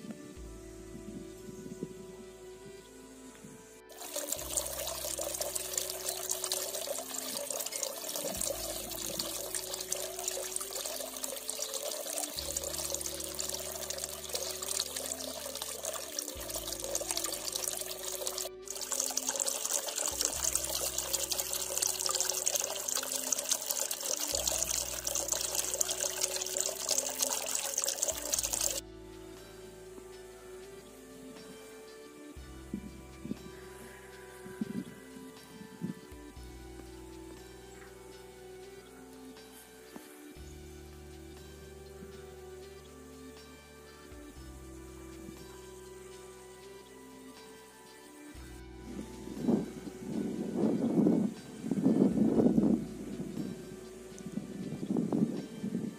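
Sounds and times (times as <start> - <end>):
water pouring into stone trough: 3.9 - 28.8.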